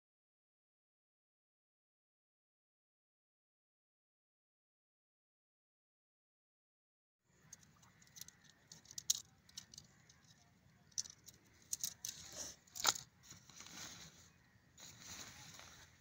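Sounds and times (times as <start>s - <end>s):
tent pole clicking and rattling: 7.3s - 16.0s
nylon fabric rustling: 13.3s - 16.0s.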